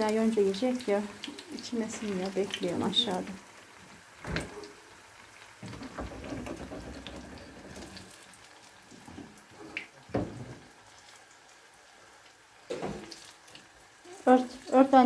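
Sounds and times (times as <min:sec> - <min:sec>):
water running: 0:00.0 - 0:10.9
sharp knocks: 0:05.6 - 0:07.9.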